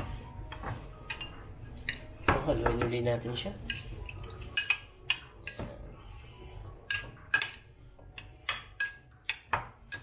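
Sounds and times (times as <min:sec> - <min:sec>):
spoon clinking in ceramic bowl: 0:03.6 - 0:05.7, 0:08.2 - 0:10.0.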